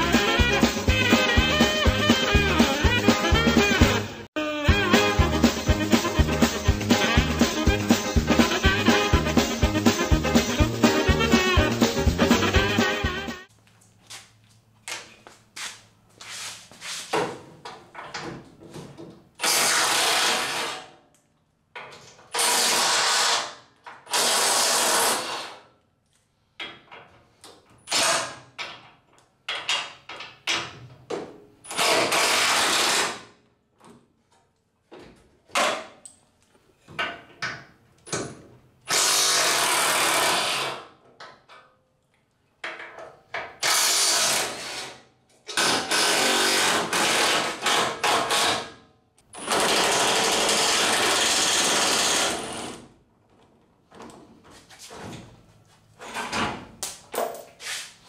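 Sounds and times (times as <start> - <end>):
cordless drill running: 49.4 - 52.8.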